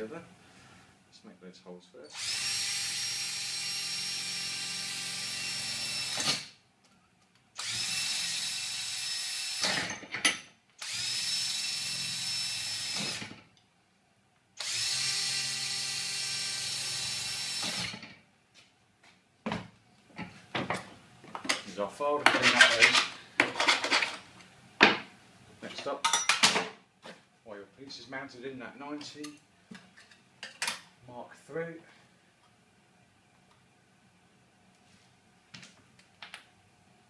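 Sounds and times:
cordless drill whining: 2.1 - 6.5, 7.6 - 10.0, 10.8 - 13.4, 14.6 - 18.0.

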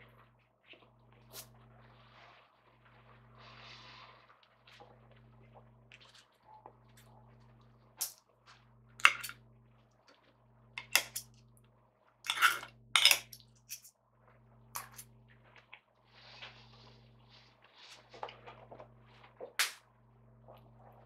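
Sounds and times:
steady low hum: 0.0 - 21.0
cutlery clinking on ceramic plate: 12.3 - 13.9.

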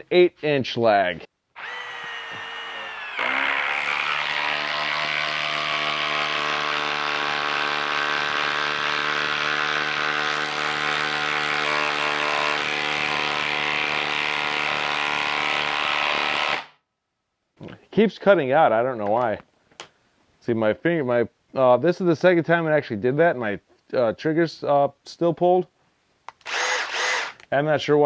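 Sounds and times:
impact driver hammering: 1.7 - 16.7.

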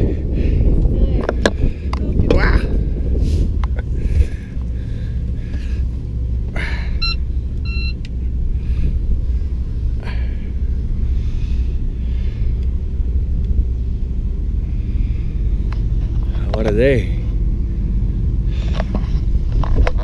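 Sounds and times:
boat engines rumbling: 0.0 - 20.0
short high tones: 7.0 - 8.0.

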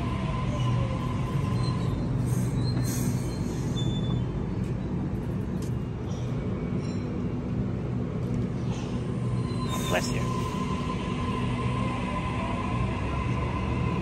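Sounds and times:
electric train hum: 0.0 - 14.0
high squeaks and hisses: 9.4 - 10.7.

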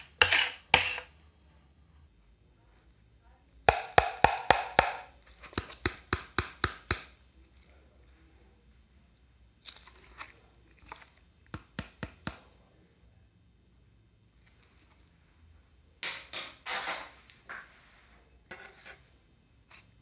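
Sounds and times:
ice cream rolls clicking and crunching: 9.5 - 12.5.

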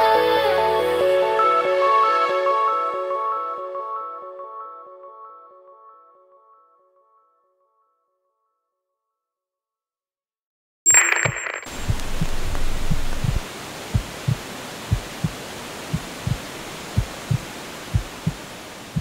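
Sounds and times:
steady hiss: 11.7 - 19.0
heartbeat thumps: 11.8 - 19.0.

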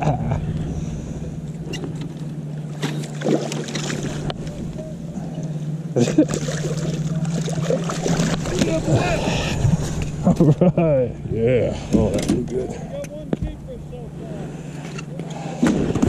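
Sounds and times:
boat motor humming: 0.0 - 16.0
water splashing: 1.6 - 10.3.

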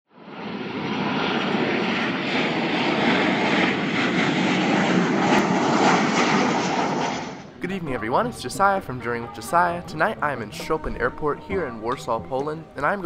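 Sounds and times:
jet airliner engines roaring: 0.1 - 10.8.

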